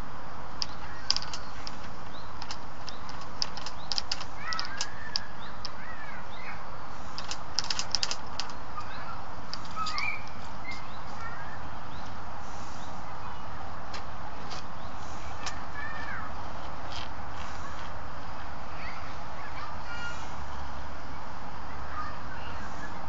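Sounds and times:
small birds chirping: 0.0 - 23.0
steady outdoor hiss: 0.0 - 23.0
short clicks: 0.6 - 5.8.

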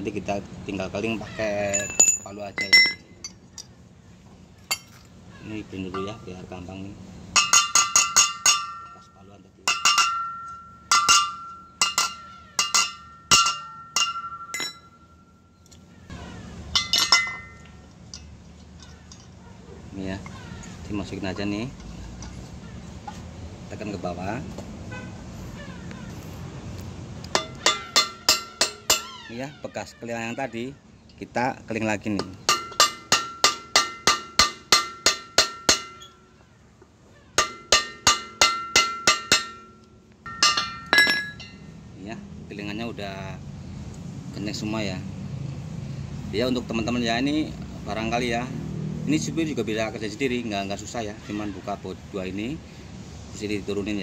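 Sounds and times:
metal clinking on wheel rim: 1.6 - 3.8, 4.7 - 5.1, 7.3 - 15.8, 16.7 - 19.5, 27.3 - 29.2, 32.1 - 36.4, 37.4 - 41.7.

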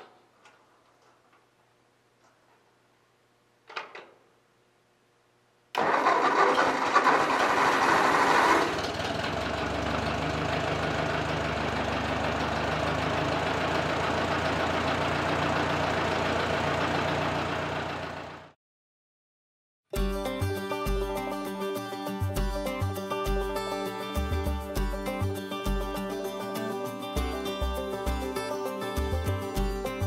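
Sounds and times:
tractor engine starting and idling: 5.7 - 18.6.

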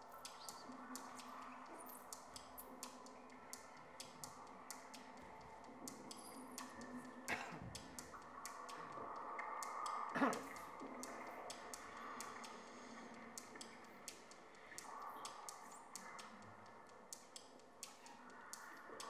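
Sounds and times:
faint steady tones: 0.0 - 19.0
soft irregular clicks: 0.0 - 19.0.

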